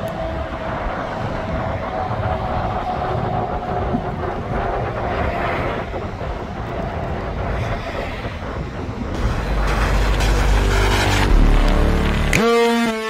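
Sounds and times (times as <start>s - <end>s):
wind buffeting microphone: 0.0s - 11.6s
highway traffic with trucks: 0.0s - 12.3s
music: 9.2s - 13.0s.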